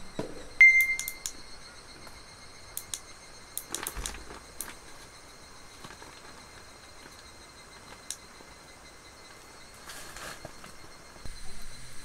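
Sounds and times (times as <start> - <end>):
faint insect song: 0.0 - 12.0
short high electronic beep: 0.6 - 1.3
button clicks: 0.6 - 1.4.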